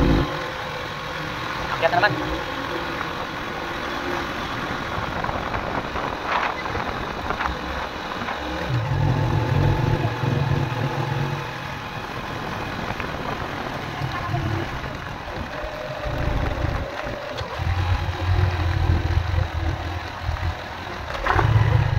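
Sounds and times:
motorcycle engine rumble: 0.0 - 21.9
tyres on gravel road: 0.0 - 21.9.

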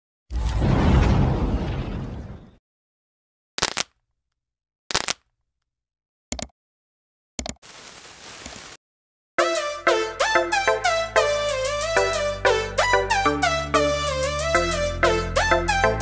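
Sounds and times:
explosion with deep rumble: 0.3 - 2.6.

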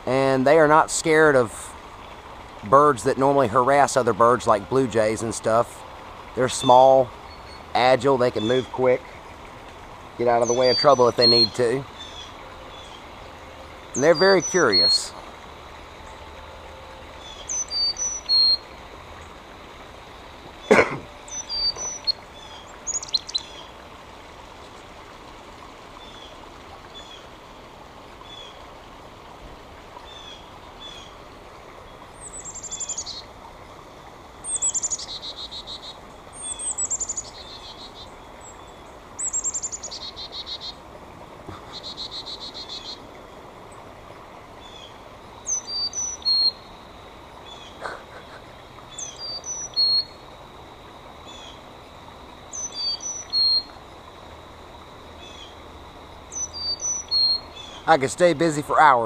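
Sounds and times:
chickadees chirping: 10.2 - 13.1, 13.9 - 15.2, 17.2 - 18.6, 20.6 - 23.6, 34.5 - 38.6, 41.5 - 43.0, 44.7 - 46.8, 47.4 - 50.2, 56.3 - 58.6
falling high bird calls: 17.2 - 18.6, 20.6 - 23.6.

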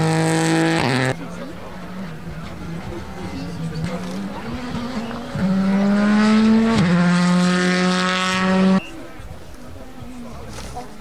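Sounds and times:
rally car engine accelerating: 0.0 - 9.0.

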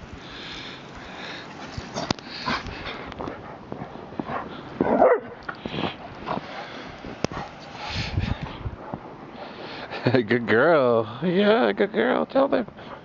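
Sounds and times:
dog barking: 4.8 - 5.4.

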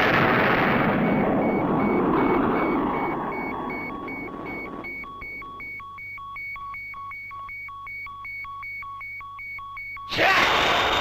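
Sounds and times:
electronic two-tone beep: 1.0 - 10.1.

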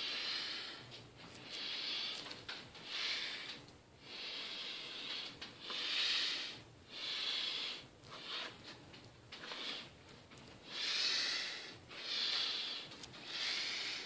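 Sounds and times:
heavy airy breathing: 0.0 - 8.8, 9.4 - 14.0.

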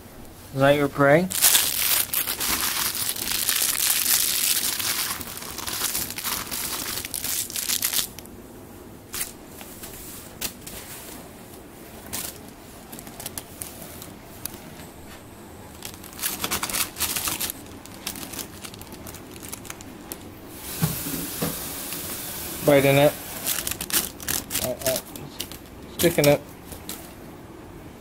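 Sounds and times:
plastic bag crinkling: 1.2 - 8.3, 12.0 - 14.8, 15.6 - 20.8, 22.0 - 27.0.

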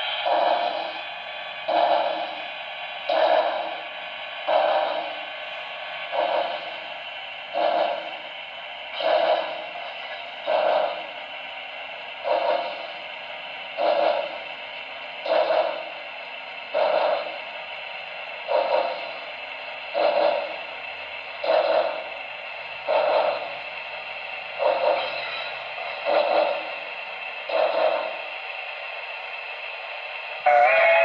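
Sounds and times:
steady steam hiss: 0.0 - 31.0
steam locomotive chuffs: 0.0 - 31.0.

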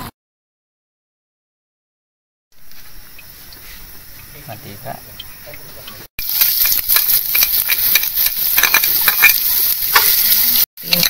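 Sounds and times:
food sizzling in a pan: 6.2 - 11.0
utensil scraping a pan: 6.4 - 11.0.

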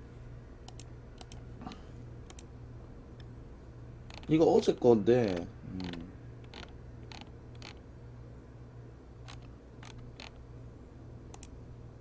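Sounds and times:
low steady hum: 0.0 - 12.0
mouse and keyboard clicks: 0.6 - 1.4, 4.1 - 4.3, 5.3 - 7.8, 9.2 - 10.4.

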